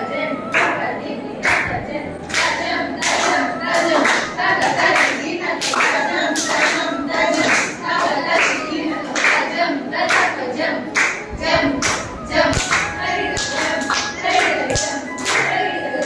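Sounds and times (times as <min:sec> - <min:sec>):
hand claps: 0:02.3 - 0:09.5, 0:11.0 - 0:11.2, 0:11.8 - 0:15.6.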